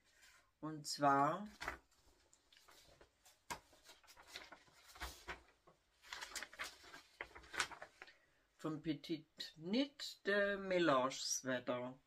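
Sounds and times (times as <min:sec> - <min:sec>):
paper sheets rustling: 0:01.5 - 0:08.2.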